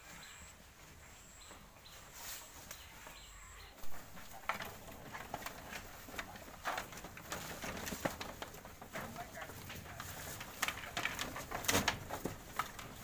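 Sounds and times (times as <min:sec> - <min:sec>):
fodder rustling: 0:00.1 - 0:13.0.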